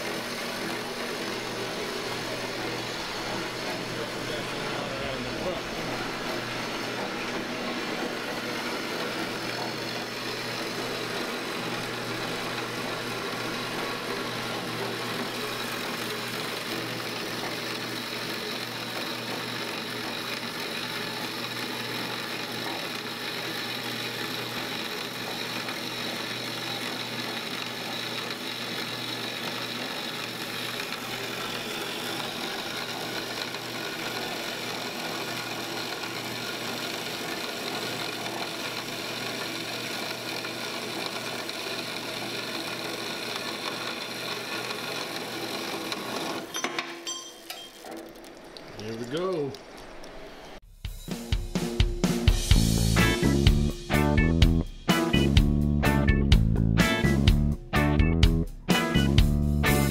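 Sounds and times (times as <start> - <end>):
motor hum: 0.0 - 46.6, 47.6 - 50.6
bandsaw cutting steel: 0.0 - 47.8.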